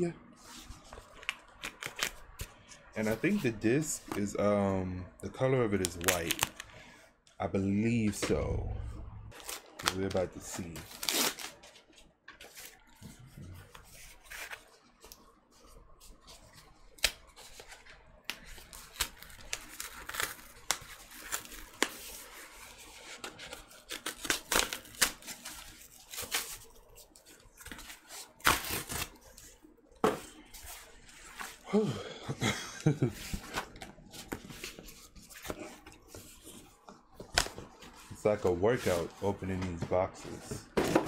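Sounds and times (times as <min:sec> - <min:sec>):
cardboard ripping and rustling: 0:09.3 - 0:11.7, 0:18.5 - 0:22.0, 0:22.8 - 0:26.8, 0:27.6 - 0:29.2.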